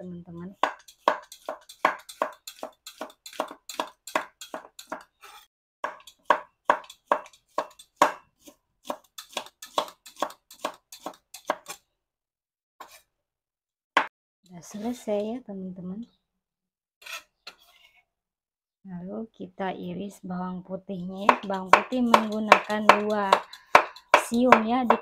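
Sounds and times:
knife chopping on wooden board: 0:00.6 - 0:05.1, 0:05.8 - 0:11.8, 0:21.2 - 0:25.0.

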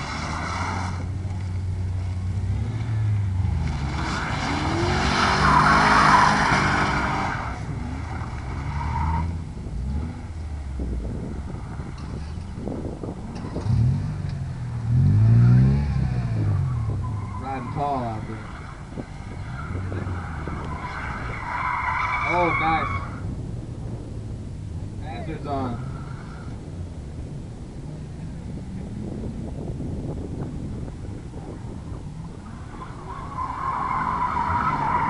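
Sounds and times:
tyres squealing on asphalt: 0:00.0 - 0:01.6, 0:02.5 - 0:09.4, 0:16.4 - 0:23.4, 0:25.1 - 0:26.7, 0:31.5 - 0:35.0
car engine revving: 0:00.0 - 0:35.0.

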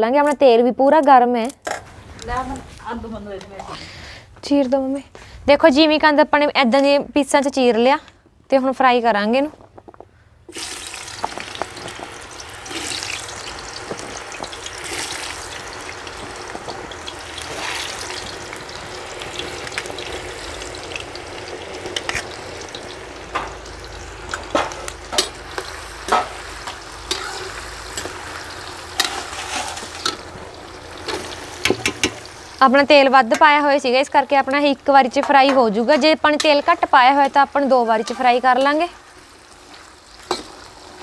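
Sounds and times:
food deep-frying in hot oil: 0:10.5 - 0:41.0.

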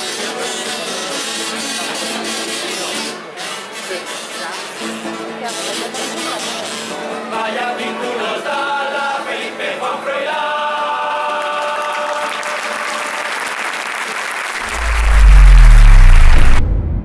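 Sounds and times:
group singing in unison: 0:07.3 - 0:12.7
crowd applauding: 0:11.2 - 0:16.6
low falling boom: 0:14.6 - 0:17.0.

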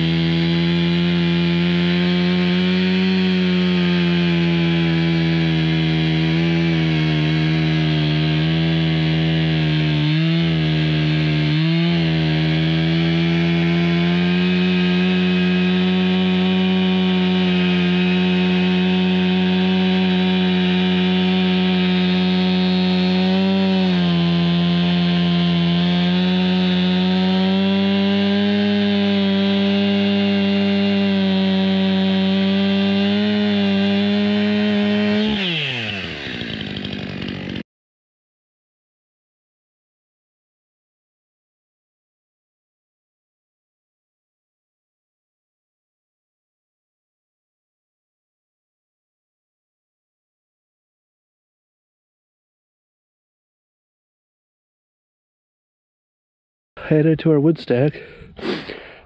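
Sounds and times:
chainsaw cutting log: 0:00.0 - 0:37.6, 0:57.1 - 0:59.0.

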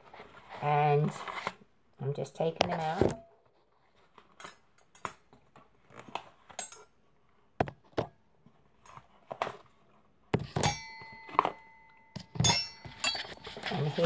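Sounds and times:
metal cutlery clinking: 0:06.5 - 0:06.9, 0:10.6 - 0:14.0.

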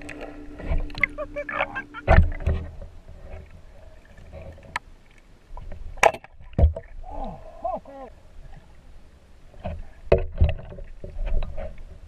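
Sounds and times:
water sloshing and splashing: 0:00.0 - 0:07.4.

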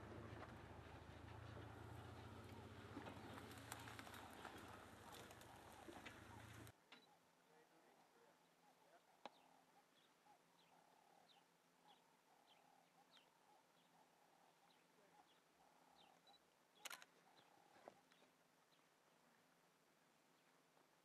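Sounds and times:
faint high chirps: 0:08.6 - 0:18.2.

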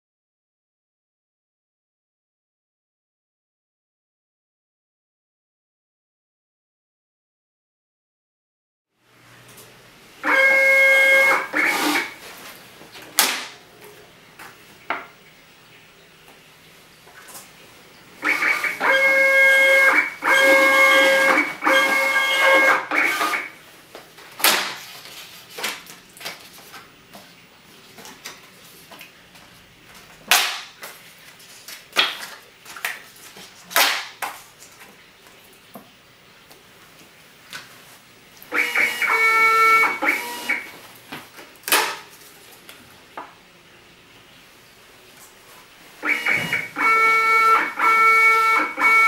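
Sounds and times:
ticket printer motor whine: 0:10.2 - 0:12.2, 0:18.2 - 0:23.6, 0:38.5 - 0:40.7, 0:46.0 - 0:49.0.

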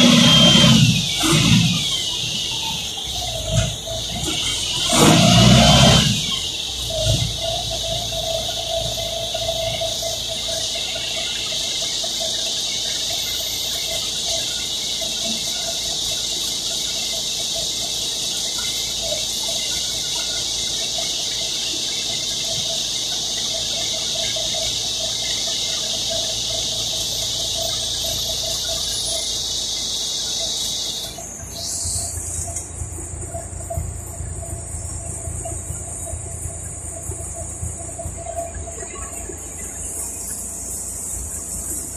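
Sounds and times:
bus running hiss: 0:00.0 - 0:12.2
wavering whine: 0:00.0 - 0:41.9.

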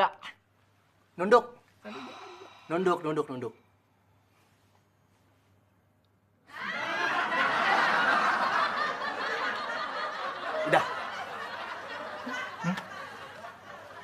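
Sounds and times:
audience laughter: 0:06.6 - 0:14.0.

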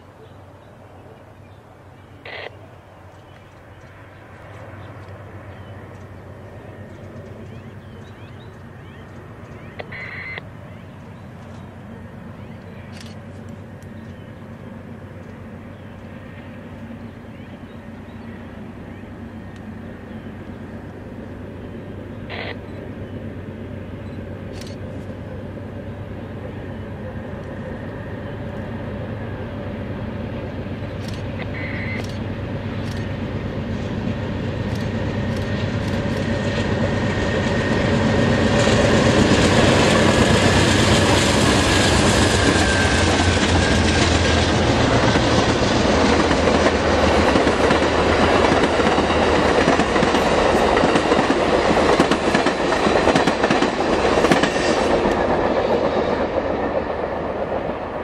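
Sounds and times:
diesel locomotives under load: 0:01.6 - 0:58.0
train wheel clatter over rail joints: 0:37.9 - 0:57.8.

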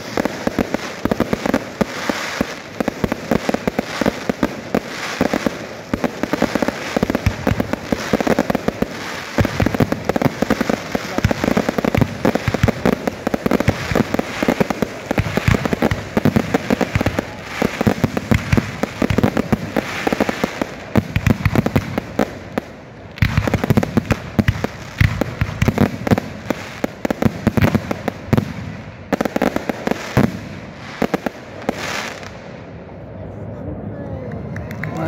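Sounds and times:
fireworks bursting in rapid barrage: 0:00.0 - 0:32.9.

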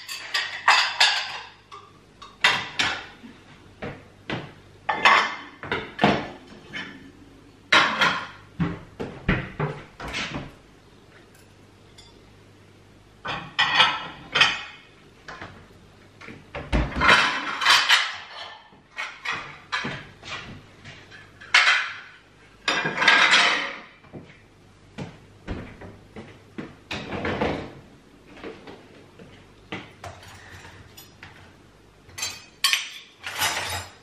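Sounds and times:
ceramic plates clattering: 0:00.0 - 0:03.2, 0:04.9 - 0:07.1, 0:13.3 - 0:14.8, 0:16.9 - 0:20.0, 0:21.1 - 0:23.9, 0:32.2 - 0:34.0.

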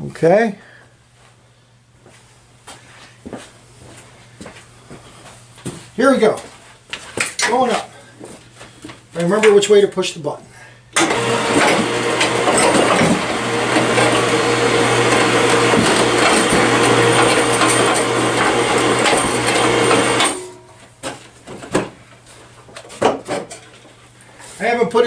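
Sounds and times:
electric winch humming: 0:11.0 - 0:20.7.

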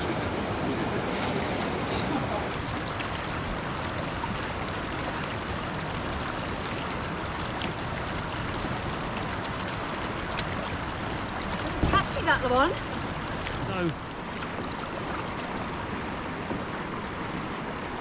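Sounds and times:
river rapids rushing: 0:00.0 - 0:07.3.

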